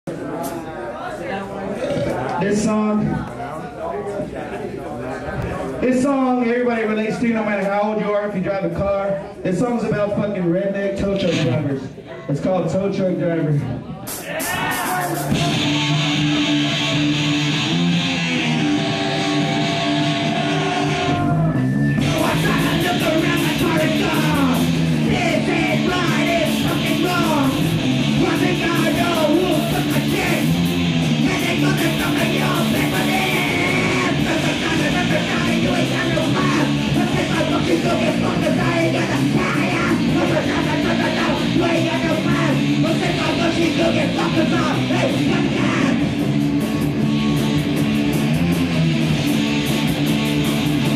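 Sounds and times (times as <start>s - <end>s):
shouted vocals: 14.1s - 46.1s
live heavy rock band: 14.1s - 50.9s
sustained guitar notes: 14.8s - 50.9s.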